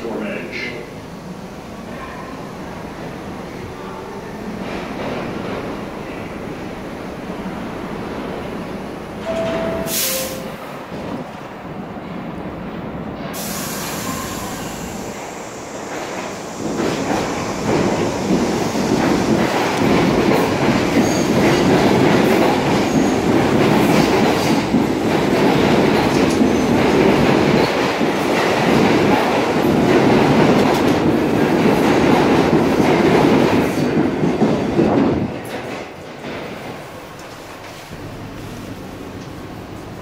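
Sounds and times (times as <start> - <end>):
subway train rumbling past: 0.0 - 40.0.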